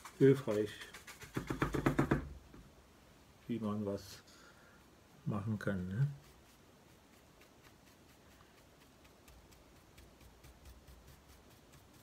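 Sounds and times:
paintbrush bristles scrubbing: 0.0s - 1.7s, 4.8s - 12.0s.

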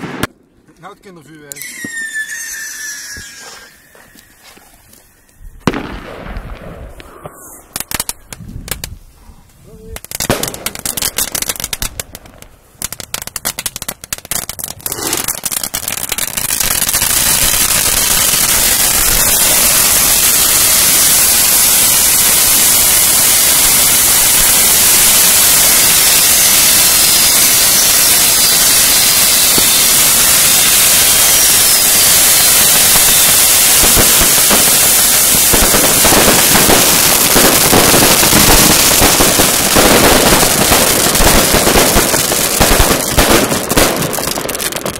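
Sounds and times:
firecracker bangs: 0.0s - 0.4s, 5.6s - 8.8s, 10.0s - 12.2s, 14.8s - 44.9s
fireworks crackling and hissing: 0.0s - 44.9s
faint firework whistles: 1.5s - 6.0s, 6.8s - 8.8s, 17.4s - 36.8s.

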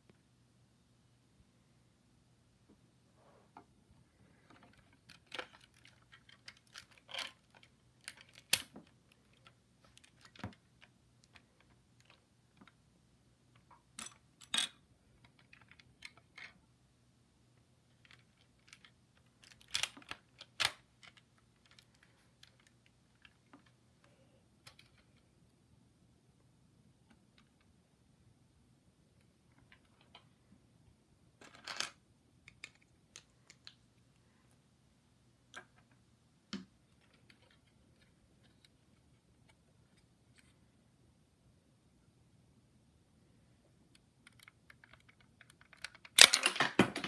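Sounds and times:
plastic toy gun mechanism clicking: 45.6s - 46.8s.

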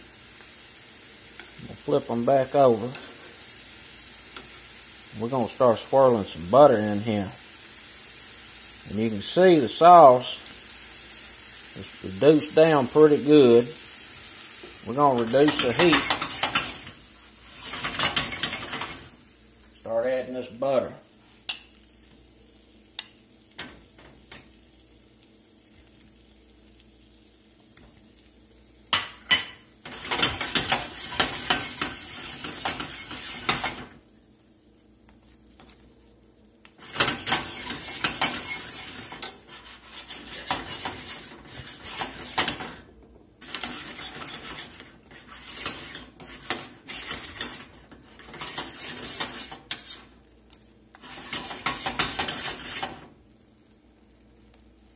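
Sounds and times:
sauce sizzling: 0.0s - 54.9s
metal tongs scraping a skillet: 2.2s - 3.3s, 14.6s - 19.1s, 28.9s - 33.9s, 36.8s - 42.8s, 43.4s - 50.2s, 50.9s - 53.1s.

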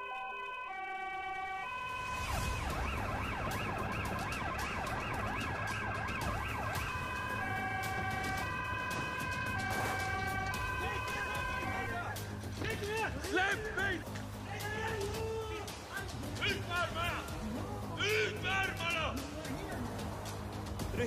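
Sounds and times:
police siren yelping: 0.0s - 12.2s.

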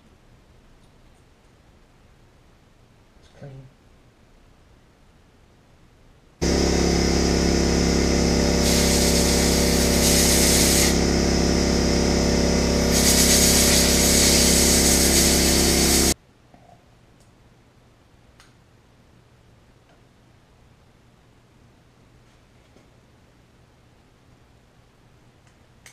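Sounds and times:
handheld power tool running: 6.4s - 16.2s.

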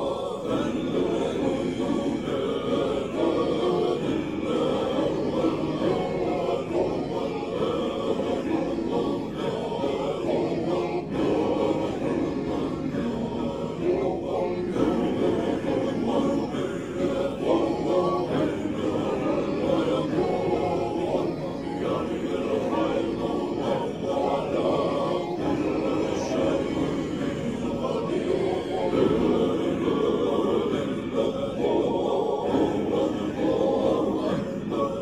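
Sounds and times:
group of voices chanting: 0.0s - 35.0s.

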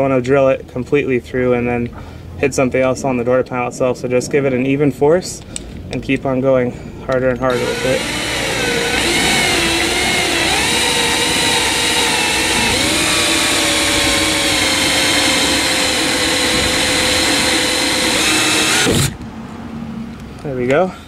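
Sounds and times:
battery drill whining: 7.5s - 19.2s.

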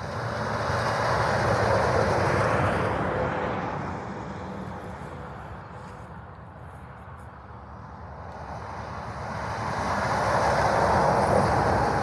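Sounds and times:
truck passing by: 0.0s - 12.0s.

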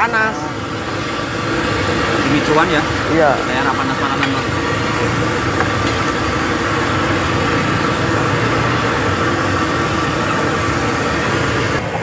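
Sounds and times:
engine hum: 0.0s - 12.0s
food deep-frying in hot oil: 0.0s - 12.0s.

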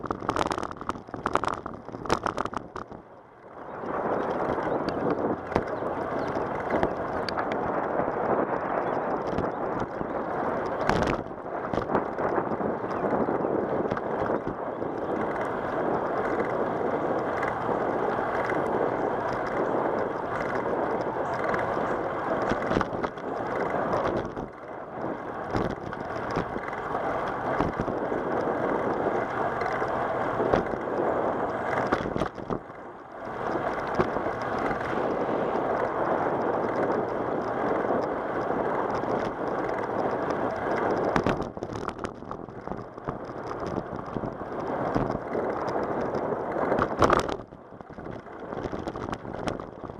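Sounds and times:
bicycle tyres on asphalt: 0.0s - 49.9s
wind buffeting microphone: 0.0s - 49.9s.

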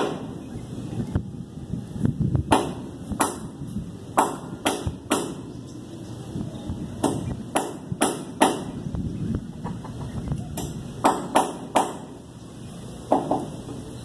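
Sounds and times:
sharp knocks: 10.6s - 12.2s, 13.1s - 13.5s.

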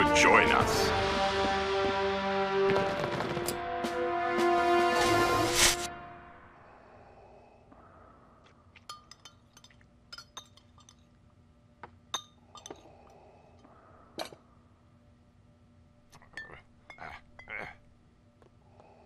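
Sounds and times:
glasses and cutlery clinking: 8.9s - 11.1s, 12.1s - 12.9s, 16.2s - 17.6s.

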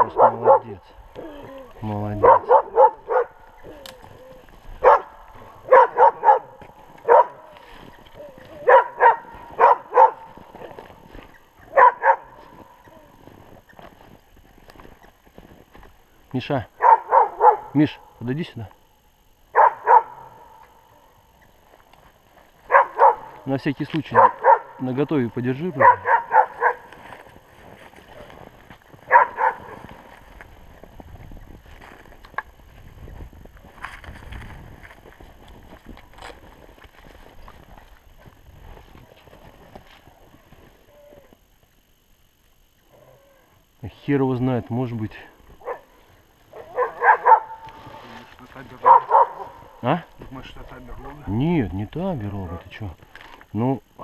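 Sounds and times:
dogs barking: 0.0s - 1.0s, 1.9s - 13.4s, 16.7s - 18.2s, 19.5s - 21.2s, 22.6s - 27.3s, 28.1s - 30.1s, 45.6s - 48.1s, 48.7s - 49.8s.

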